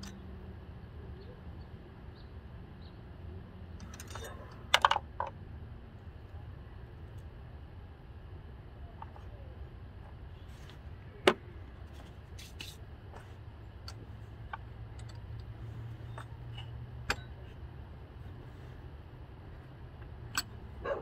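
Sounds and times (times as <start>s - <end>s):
steady low hum: 0.0s - 21.0s
tools clicking and knocking: 3.8s - 5.4s, 13.8s - 17.6s, 20.0s - 20.6s.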